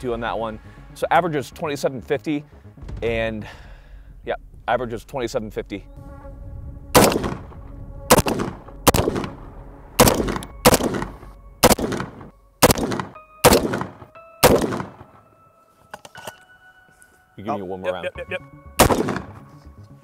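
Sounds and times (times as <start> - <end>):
rifle shots with echo: 6.9 - 7.5, 8.1 - 15.1, 18.8 - 19.4.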